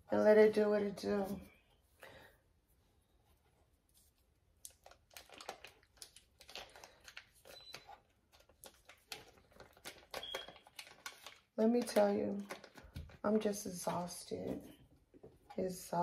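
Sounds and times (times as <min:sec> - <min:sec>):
paper wrappers crinkling and tearing: 0:04.5 - 0:13.4.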